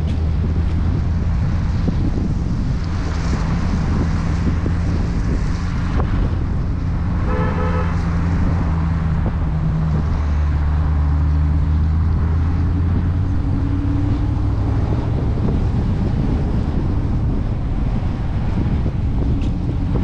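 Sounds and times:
car engine at low revs: 0:00.0 - 0:20.0
car horn toot: 0:07.2 - 0:08.2.

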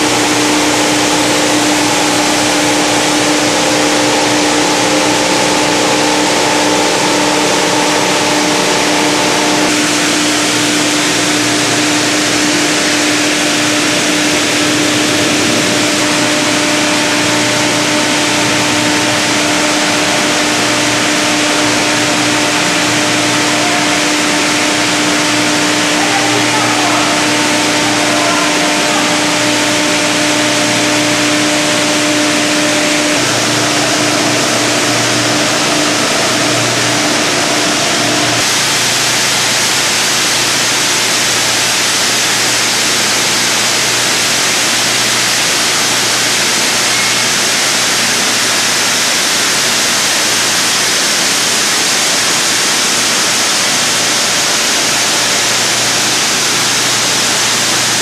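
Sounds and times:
machinery running: 0:00.0 - 0:58.0
motor hum: 0:00.0 - 0:58.0.

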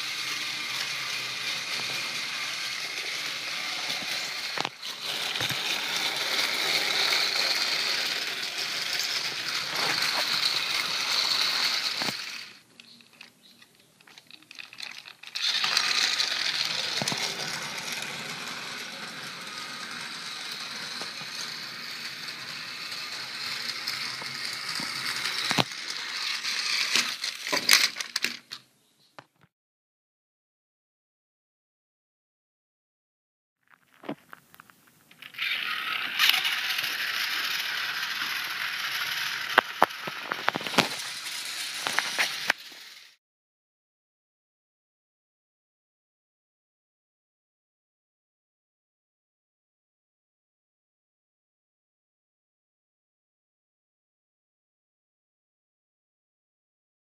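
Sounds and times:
toy train motor whirring: 0:00.0 - 0:28.6, 0:35.1 - 0:43.2.

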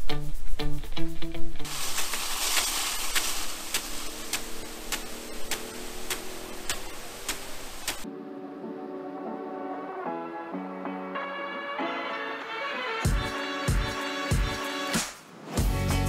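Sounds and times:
music: 0:00.0 - 0:01.7, 0:08.0 - 0:16.0
water spray hissing: 0:01.7 - 0:08.0
sprinkler impact arm ticking: 0:01.9 - 0:08.0.

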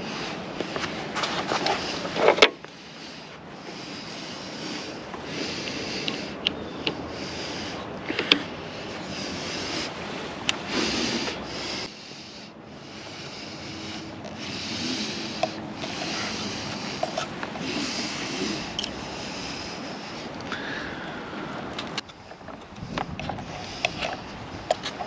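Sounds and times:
rubbing and scraping handling noise: 0:00.0 - 0:06.3, 0:13.0 - 0:19.6, 0:21.8 - 0:25.0.

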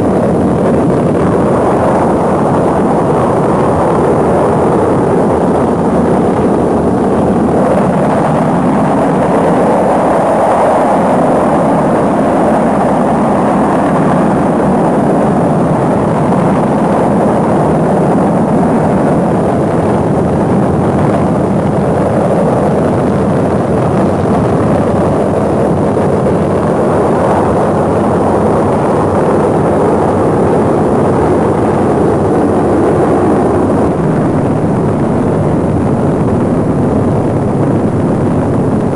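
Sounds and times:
rocket engines rumbling: 0:00.0 - 0:38.9.

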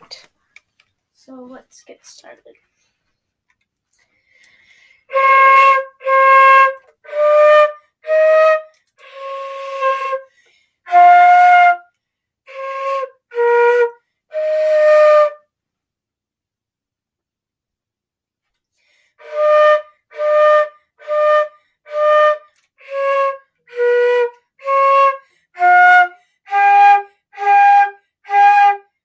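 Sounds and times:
solo flute playing slow tune: 0:05.1 - 0:10.3, 0:10.9 - 0:11.9, 0:12.5 - 0:15.5, 0:19.2 - 0:28.9.

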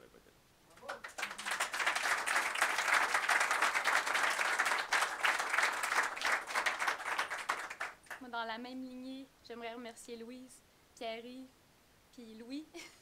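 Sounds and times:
audience applauding: 0:00.7 - 0:08.2.

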